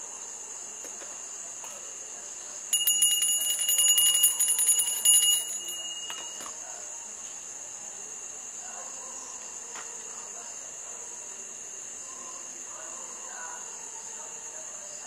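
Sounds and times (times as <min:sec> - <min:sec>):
hand bell ringing rapidly: 0:02.7 - 0:06.4.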